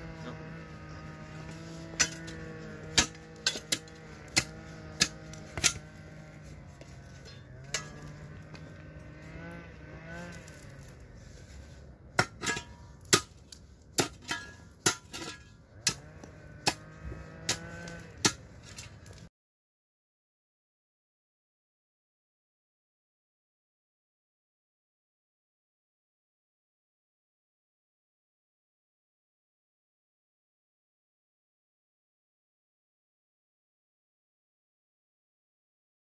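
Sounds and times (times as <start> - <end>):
spade chopping stony ground: 0.8 - 9.1, 10.1 - 19.3.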